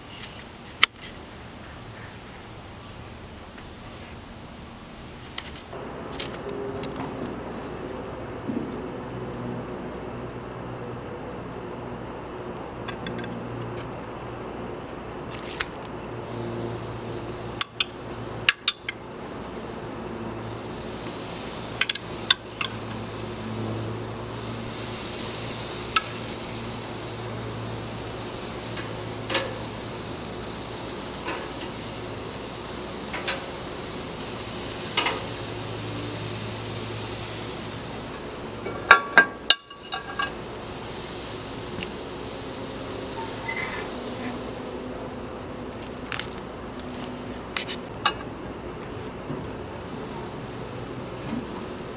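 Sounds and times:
steady low hum: 0.0 - 51.9
meat sizzling on grill: 15.3 - 48.2, 49.5 - 51.9
metal tongs clinking on grill grates: 21.4 - 23.1, 28.7 - 29.8, 32.7 - 34.0, 34.9 - 35.5, 38.6 - 40.5.

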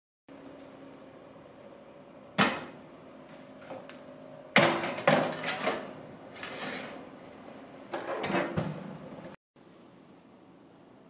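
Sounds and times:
clattering and rustling: 4.8 - 7.0.

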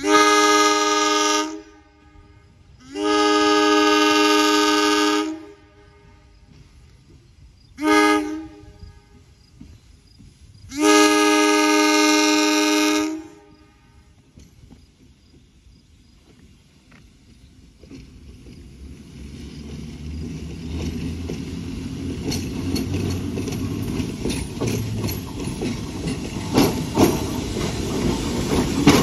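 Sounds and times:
two-note train horn: 0.0 - 6.3, 7.8 - 9.2, 10.7 - 14.1.

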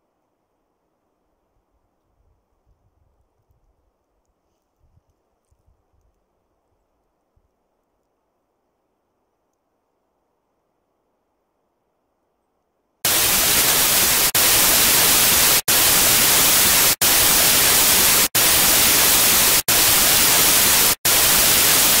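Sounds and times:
white noise static: 13.1 - 22.0.

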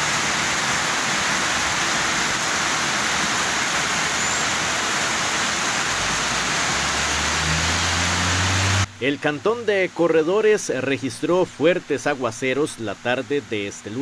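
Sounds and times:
heavy rain: 0.0 - 9.0.

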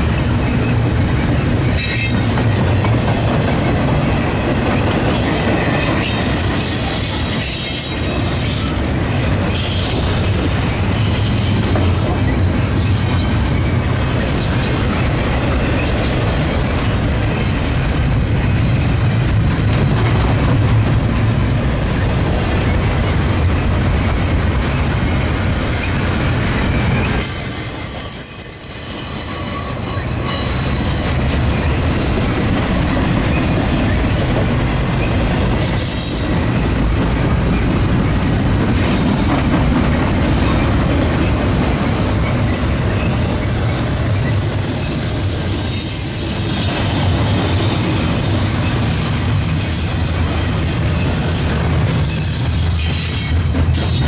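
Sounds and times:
high wheel squeal: 0.0 - 2.9, 3.5 - 17.0, 24.0 - 34.2, 42.1 - 51.4
steel wheels rumbling on rail: 0.0 - 54.0.

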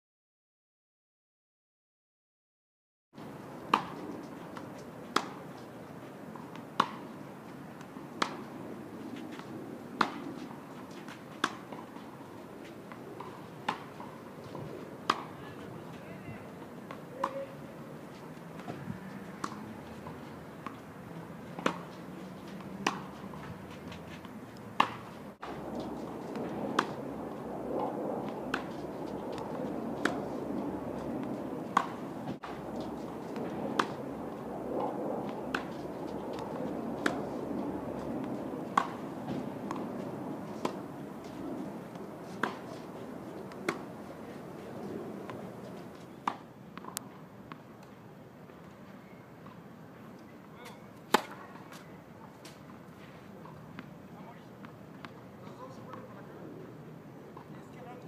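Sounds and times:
background hum: 3.4 - 48.0
tennis balls struck by rackets: 3.6 - 47.9, 50.2 - 54.0.

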